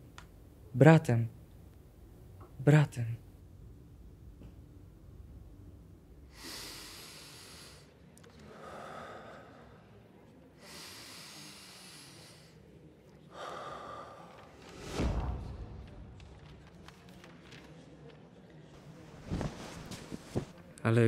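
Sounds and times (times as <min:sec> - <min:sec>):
man breathing deeply: 0:06.3 - 0:07.9, 0:08.5 - 0:09.8, 0:10.6 - 0:12.6, 0:13.3 - 0:14.7.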